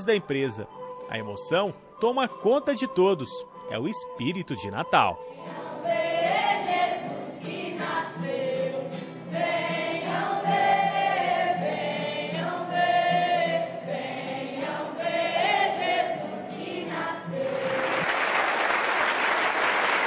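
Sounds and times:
steady musical accompaniment: 0.0s - 18.4s
choir singing slow song: 5.2s - 18.3s.

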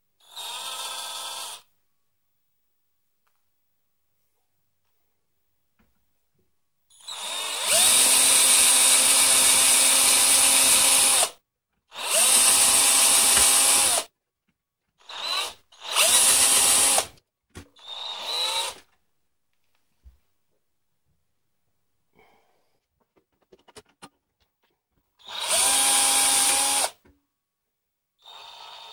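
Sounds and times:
power drill drilling metal: 0.2s - 1.6s, 7.0s - 11.3s, 11.9s - 14.1s, 15.0s - 17.1s, 17.8s - 18.8s, 25.2s - 27.0s, 28.2s - 28.9s.

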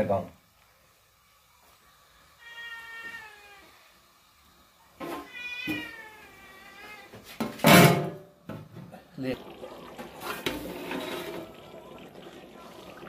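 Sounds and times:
cat meowing: 2.4s - 3.8s, 5.0s - 7.2s.

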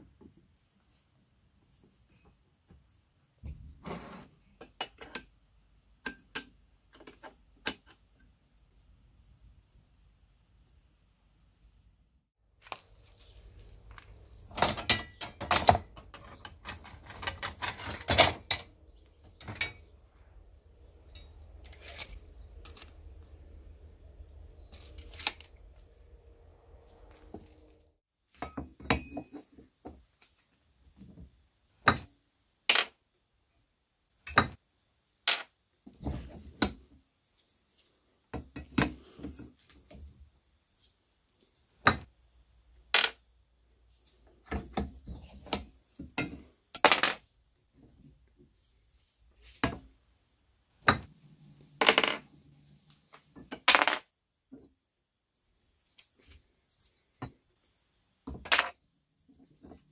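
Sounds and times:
rusty metal parts clanking: 14.5s - 18.7s.

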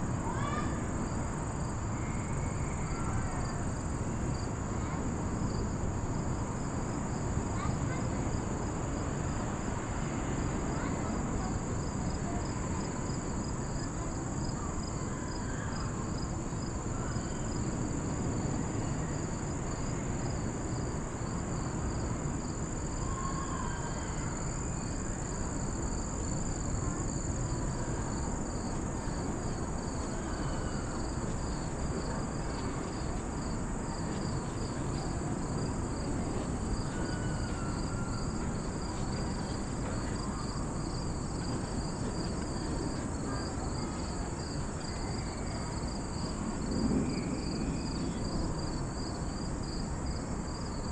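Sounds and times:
high-pitched insect trill: 13.6s - 31.7s, 36.7s - 50.8s
pulsing insect call: 36.7s - 50.8s.

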